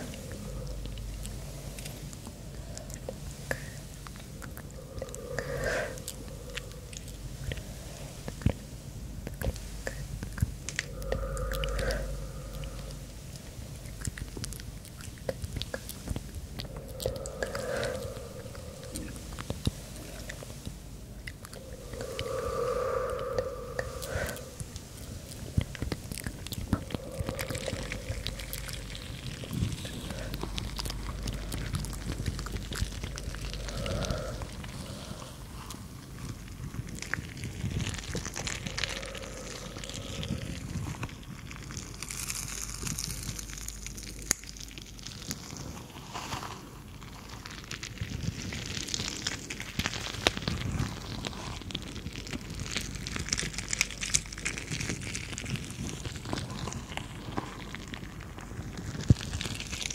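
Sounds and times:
stress balls crackling and squishing: 0:00.0 - 0:59.9
bead stress balls crackling: 0:21.4 - 0:35.5.

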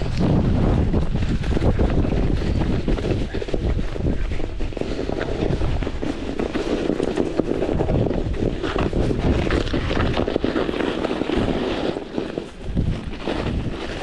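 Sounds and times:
bike tyres crunching over snow: 0:00.0 - 0:14.0
wind rumbling on microphone: 0:00.0 - 0:14.0.

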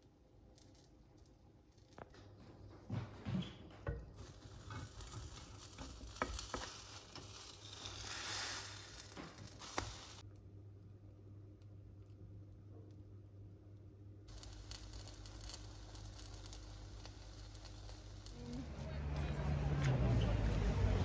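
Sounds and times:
batter sizzling in frying pan: 0:04.1 - 0:10.2, 0:14.3 - 0:19.2.

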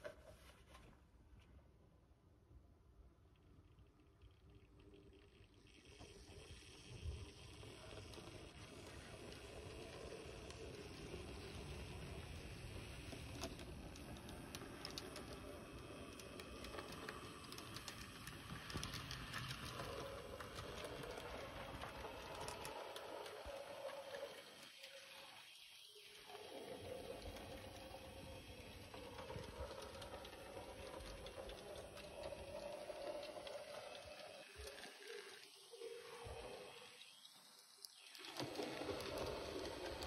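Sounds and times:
wheels clicking on rails: 0:06.0 - 0:25.4, 0:26.6 - 0:35.5, 0:37.8 - 0:40.0.

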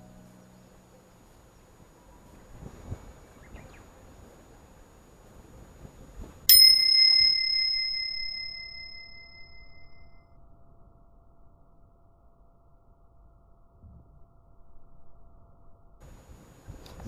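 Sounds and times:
bell ding: 0:06.5 - 0:10.2.

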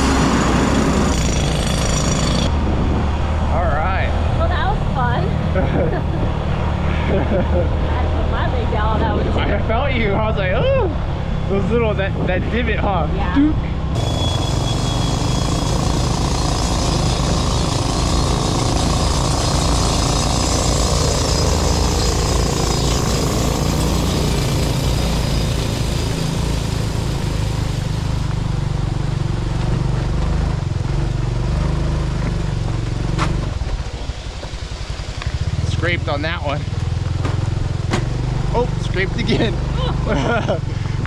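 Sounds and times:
motorbike engine running: 0:13.3 - 0:41.0.

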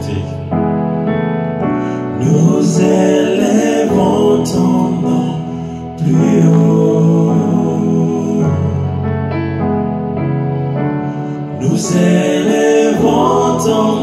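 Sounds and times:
man singing into a microphone: 0:00.0 - 0:00.5, 0:02.1 - 0:09.0, 0:11.6 - 0:14.0
keyboard chords: 0:00.0 - 0:14.0.

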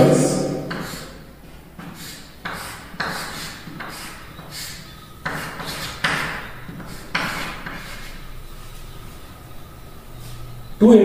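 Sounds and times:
chalk scraping on blackboard: 0:00.7 - 0:01.2, 0:01.8 - 0:08.9.

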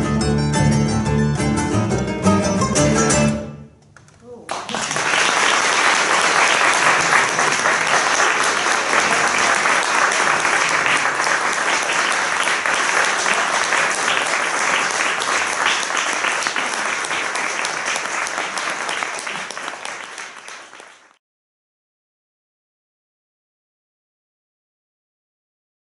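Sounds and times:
audience applauding: 0:04.0 - 0:21.2.

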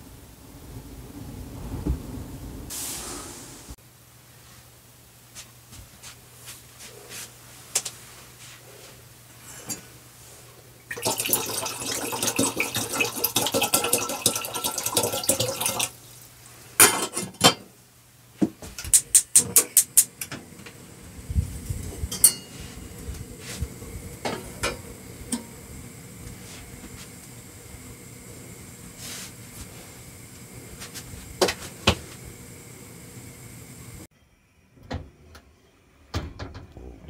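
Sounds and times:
low rumble: 0:00.0 - 0:03.8
water running: 0:10.8 - 0:17.4, 0:20.0 - 0:34.1
dishes clinking: 0:16.8 - 0:17.7, 0:22.1 - 0:22.8.

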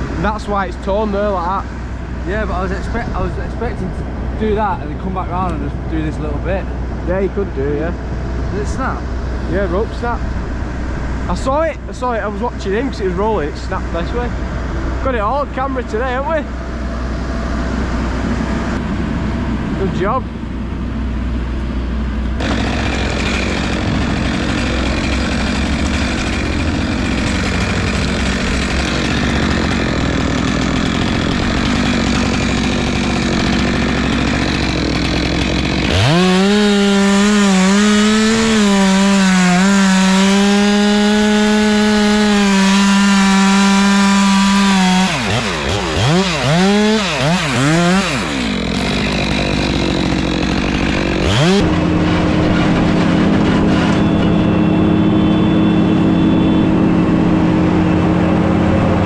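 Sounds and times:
engine running at lower pitch: 0:00.0 - 0:59.0
chainsaw cutting a log: 0:22.3 - 0:55.7.

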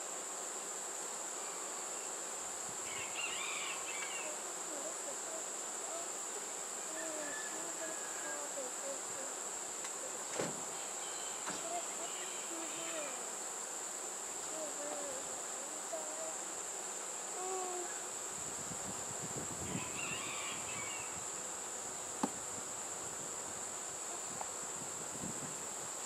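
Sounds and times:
high-pitched insect chorus: 0:00.0 - 0:26.0
honey bees buzzing past: 0:00.0 - 0:26.0
wooden hive frame knock: 0:22.1 - 0:22.5.

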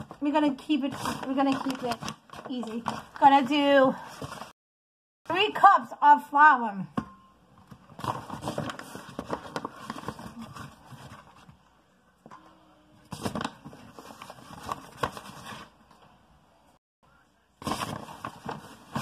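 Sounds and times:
paper bag rustling: 0:00.0 - 0:04.5, 0:07.9 - 0:11.5, 0:13.1 - 0:15.8, 0:17.6 - 0:19.0.

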